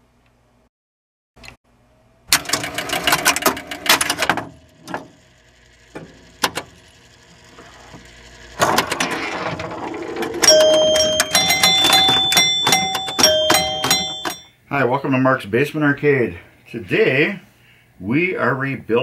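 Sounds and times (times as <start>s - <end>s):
pinball machine relays clattering: 2.4s - 5.2s, 8.6s - 14.5s.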